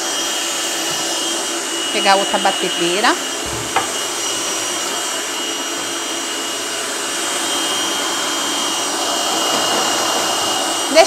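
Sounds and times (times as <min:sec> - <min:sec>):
electric stand mixer running: 0:00.0 - 0:11.0.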